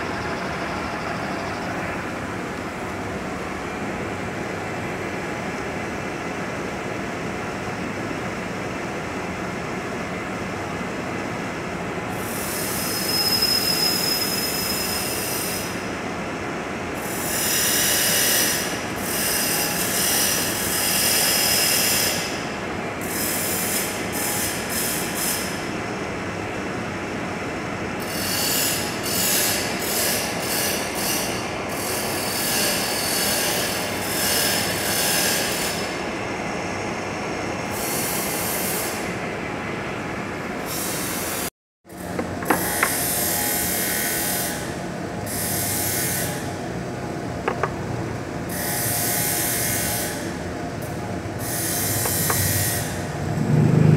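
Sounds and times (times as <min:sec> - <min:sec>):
metal lathe running: 0:00.0 - 0:02.6, 0:42.0 - 0:44.4, 0:47.4 - 0:47.9, 0:51.0 - 0:53.2
cutting tool hiss: 0:51.4 - 0:53.0.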